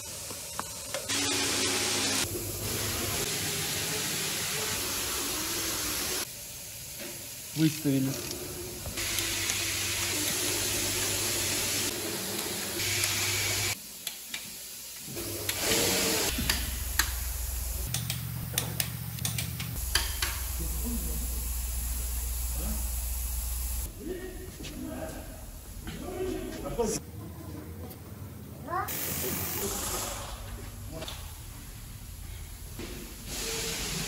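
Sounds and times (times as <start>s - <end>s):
workshop hiss and low hum: 0.0s - 34.0s
torque wrench clicks: 17.8s - 20.5s.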